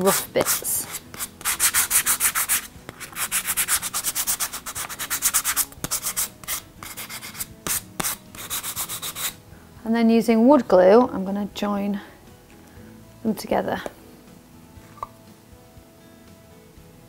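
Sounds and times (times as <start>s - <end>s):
sandpaper rubbing on wood: 0.0s - 9.4s.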